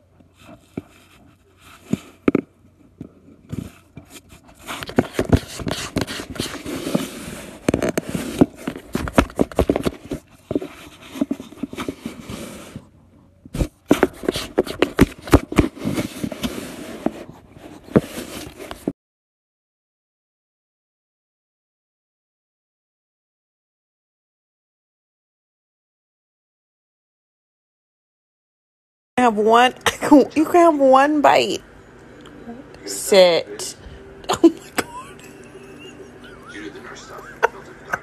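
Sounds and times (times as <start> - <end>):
cat scraping cardboard box: 3.5 - 12.9, 13.6 - 18.9.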